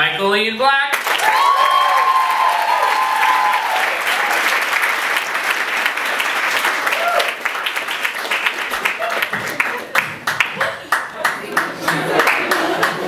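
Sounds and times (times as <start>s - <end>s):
audience applauding: 0.9s - 13.0s
voices cheering: 1.1s - 4.8s, 6.6s - 7.5s.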